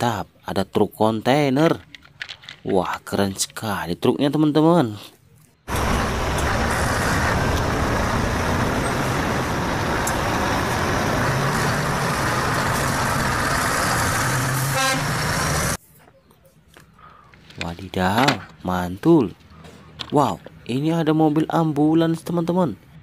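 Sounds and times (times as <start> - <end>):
lorry diesel engine running: 5.7 - 15.8.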